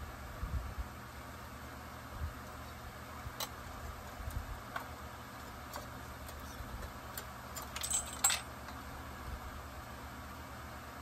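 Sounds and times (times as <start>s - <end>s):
metal parts clinking on workbench: 7.6s - 8.5s.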